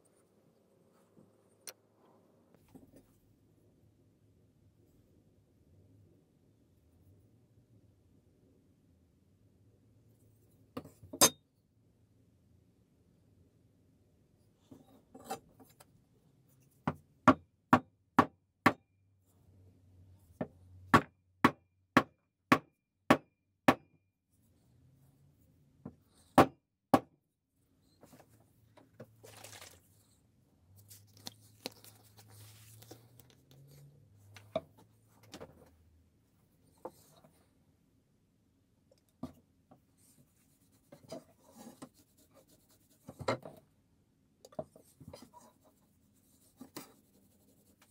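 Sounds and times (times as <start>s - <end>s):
handling and rubbing noises: 27.8s - 37.6s, 39.2s - 43.7s.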